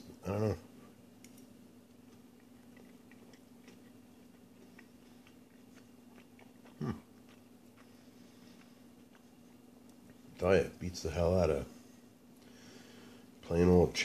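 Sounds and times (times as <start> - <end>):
person chewing: 1.2 - 10.4.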